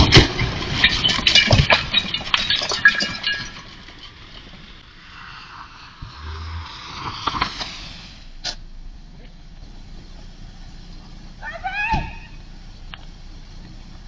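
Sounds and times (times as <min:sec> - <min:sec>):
glass breaking: 0:00.0 - 0:05.0
debris clattering: 0:00.0 - 0:08.2
steady hiss: 0:04.6 - 0:11.4.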